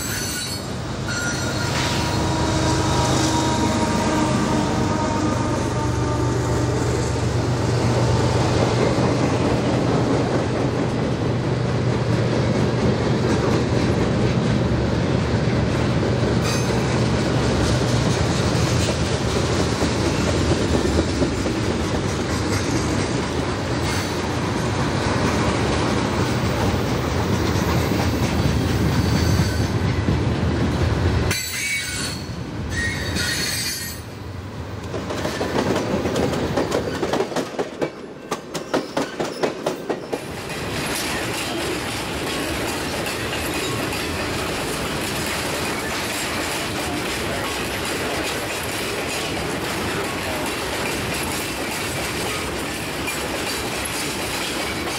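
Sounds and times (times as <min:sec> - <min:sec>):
freight train rumbling on rails: 0:00.0 - 0:54.9
wheels clacking over rail joints: 0:15.5 - 0:30.2, 0:34.8 - 0:54.9.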